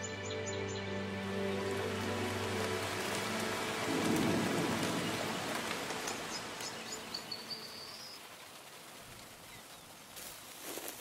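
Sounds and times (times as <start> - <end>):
rain falling on a pond: 1.0 - 11.0.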